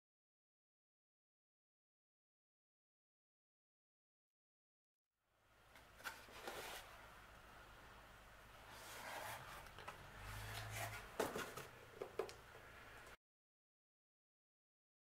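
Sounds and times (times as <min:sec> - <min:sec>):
cardboard rubbing and scraping: 0:06.0 - 0:07.0, 0:08.7 - 0:11.8.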